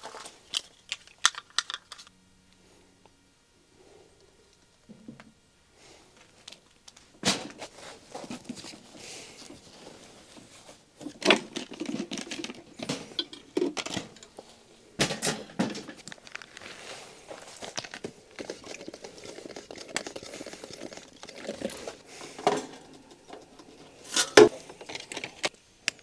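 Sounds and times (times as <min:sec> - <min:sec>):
clicks and clatter of gear: 0:00.0 - 0:02.1
rustling: 0:06.2 - 0:13.2, 0:15.8 - 0:25.5.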